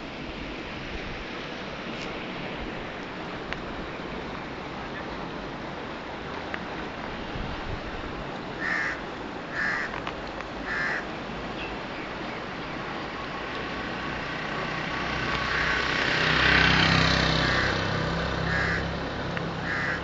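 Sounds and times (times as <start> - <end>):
steady rushing noise: 0.0 - 20.0
crow cawing: 8.6 - 10.0, 10.6 - 11.1, 15.5 - 16.0, 17.4 - 18.9, 19.6 - 20.0.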